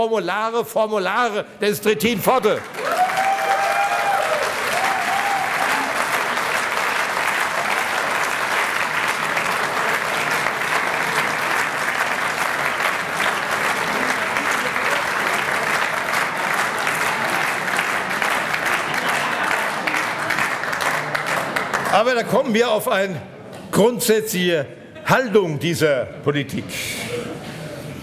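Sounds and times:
audience applauding: 0:02.4 - 0:22.6.

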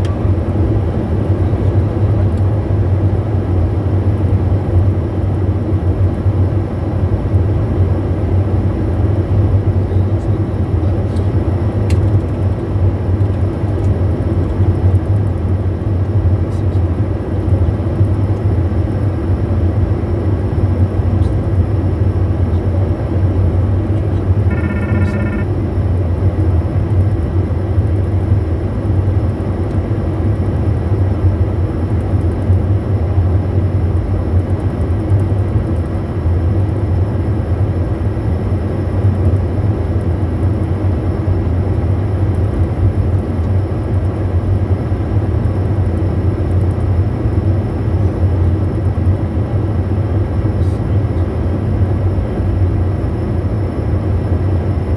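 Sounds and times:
jet engines humming: 0:00.0 - 0:54.9
brief electronic tone: 0:24.4 - 0:25.6.

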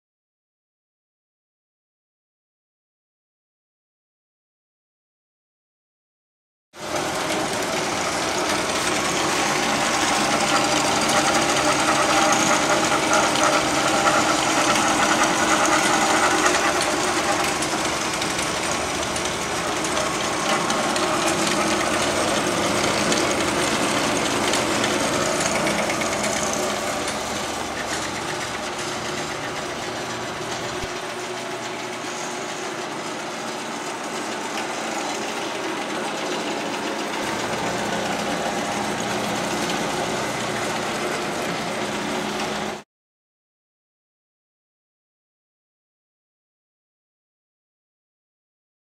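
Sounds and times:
bandsaw cutting metal tube: 0:06.8 - 0:42.8.

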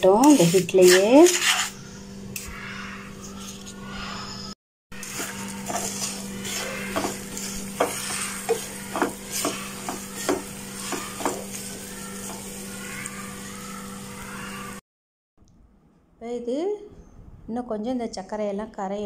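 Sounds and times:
spatula scraping sugar in pan: 0:00.0 - 0:01.8, 0:05.0 - 0:12.8
spatula knocking against pan: 0:05.2 - 0:12.5.

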